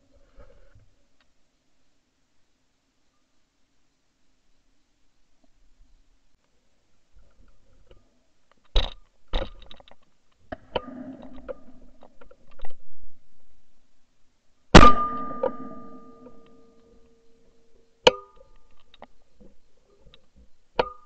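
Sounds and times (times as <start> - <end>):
clicks and rustling: 7.2 - 12.8
shotgun shot: 14.8 - 16.2
quieter sharp bangs: 14.8 - 16.7
short ringing: 14.8 - 17.5.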